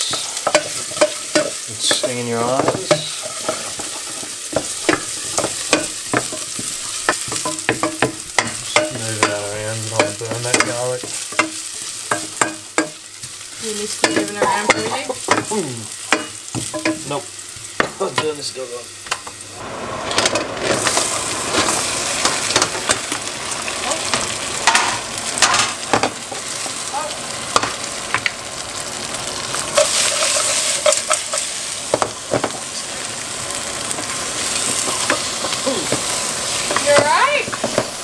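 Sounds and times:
food sizzling in hot oil: 0.0s - 38.0s
spoon knocking against pot: 4.5s - 9.4s.

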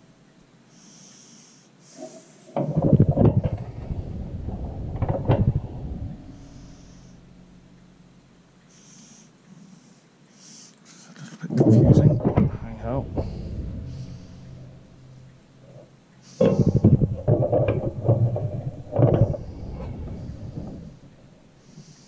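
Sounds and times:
short breaths: 0.7s - 2.6s, 6.2s - 7.5s, 8.6s - 11.3s, 13.1s - 15.2s, 16.2s - 17.0s, 19.2s - 22.0s
knocking and rubbing of parts: 2.5s - 8.2s, 11.6s - 22.0s.

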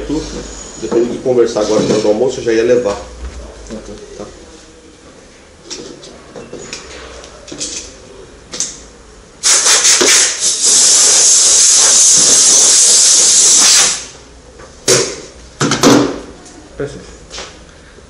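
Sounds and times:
air blow gun hissing: 9.4s - 14.1s.

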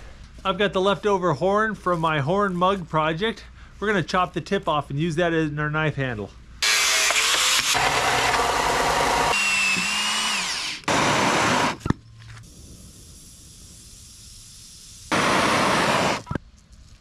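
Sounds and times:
belt sander grinding: 6.6s - 11.8s
gas torch hissing: 10.8s - 16.4s.

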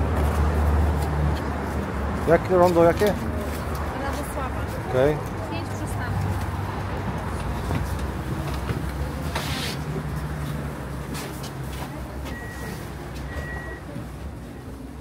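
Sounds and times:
tram hum and rumble: 0.0s - 15.0s
short high beeps: 12.3s - 13.9s.

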